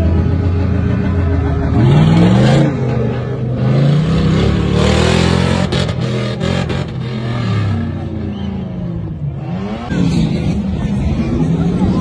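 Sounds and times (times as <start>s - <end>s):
suv engine revving: 0.0s - 11.9s.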